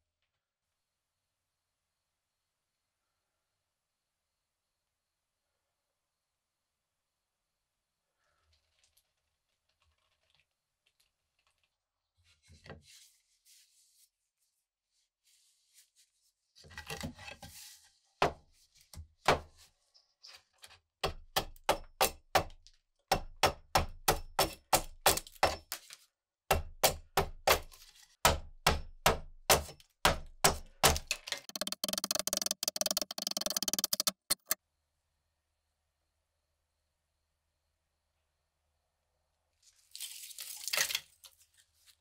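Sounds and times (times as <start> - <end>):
hatchet chopping wood: 21.0 - 25.8, 26.5 - 34.6.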